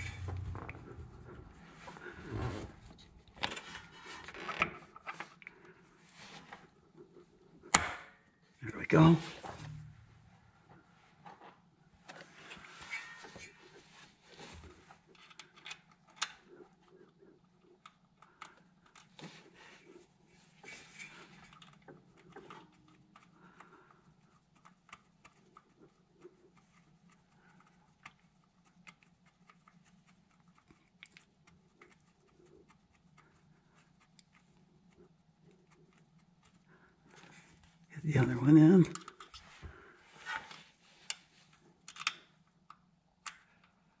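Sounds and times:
low steady hum: 0.0s - 28.5s.

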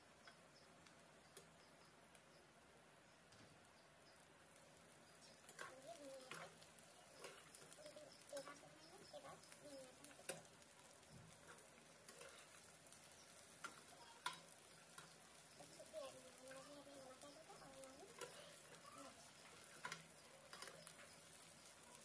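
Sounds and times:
metal spatula scraping a pan: 11.5s - 12.7s.

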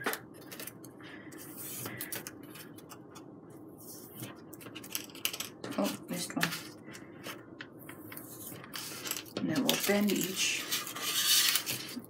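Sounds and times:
skewer scratching foam board: 10.6s - 12.0s.

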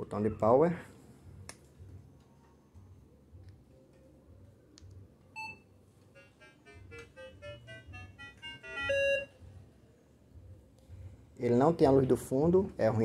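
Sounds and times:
metal detector beep: 8.8s - 9.3s.

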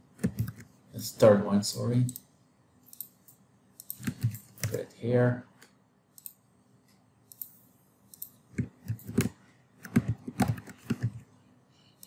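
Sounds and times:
keyboard keystrokes: 3.8s - 4.8s, 8.2s - 11.2s
mouse clicking: 5.6s - 6.4s, 7.3s - 11.2s.

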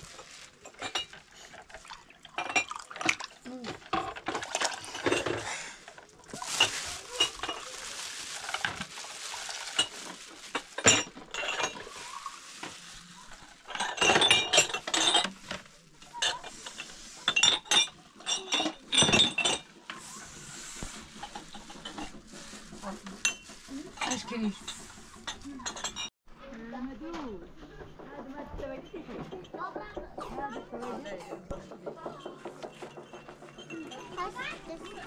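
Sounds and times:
dishes and glasses clinking: 0.6s - 7.8s, 8.4s - 20.0s, 23.1s - 26.1s, 31.3s - 35.0s
drink pouring from a pitcher: 1.5s - 3.5s.

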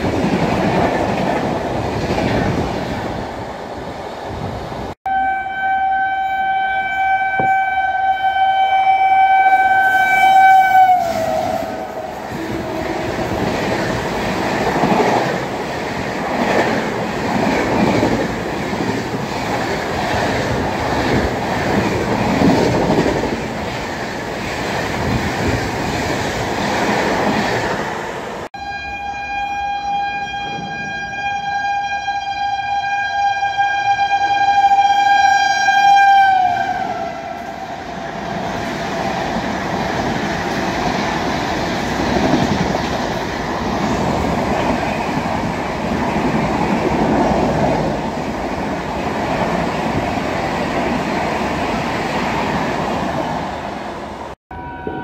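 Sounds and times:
train rumble and wheel clatter: 0.0s - 5.0s, 9.5s - 28.5s, 30.4s - 55.0s
train horn: 5.0s - 13.4s, 28.6s - 37.8s, 54.5s - 55.0s.

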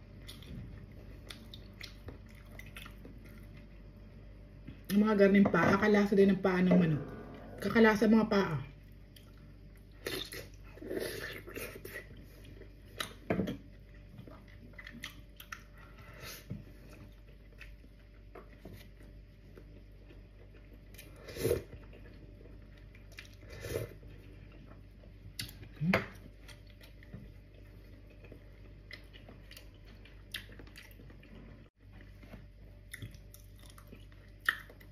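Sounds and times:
wet chewing and lip smacks: 1.2s - 3.7s, 14.2s - 15.7s, 25.3s - 31.3s, 32.8s - 34.9s.

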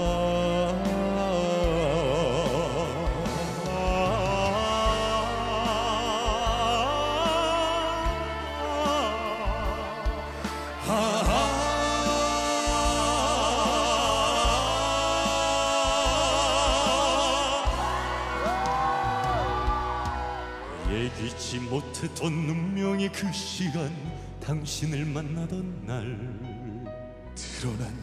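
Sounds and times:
two men singing a duet: 0.0s - 19.0s
instrumental backing music: 0.0s - 28.0s.

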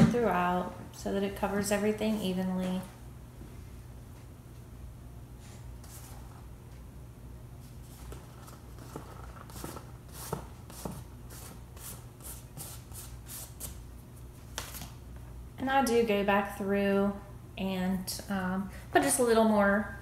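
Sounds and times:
cheese rustling and scraping: 7.6s - 13.7s.

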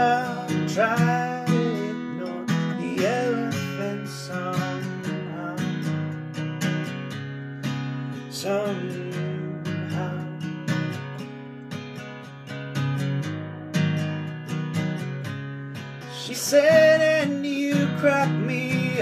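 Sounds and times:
person singing: 0.0s - 6.2s, 8.3s - 10.5s, 16.1s - 19.0s
acoustic guitar strumming: 0.0s - 19.0s.

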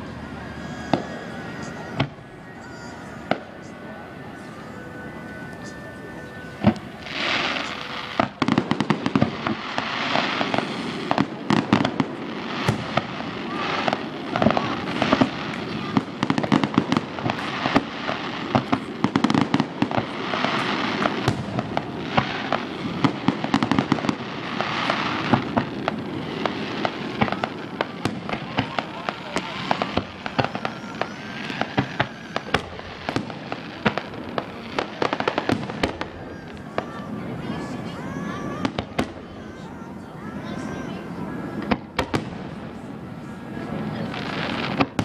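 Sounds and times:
fireworks bangs: 0.0s - 45.0s
fireworks crackling: 0.0s - 45.0s.

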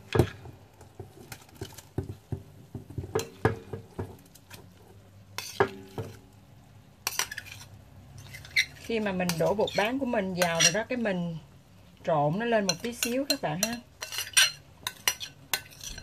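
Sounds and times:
plate scraping against metal pot: 5.4s - 6.2s, 7.0s - 10.9s, 12.6s - 16.0s.

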